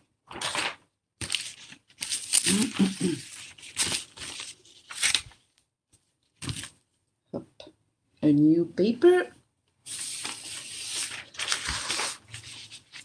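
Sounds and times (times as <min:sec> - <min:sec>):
paper rustling: 0:00.3 - 0:06.8, 0:09.9 - 0:13.0.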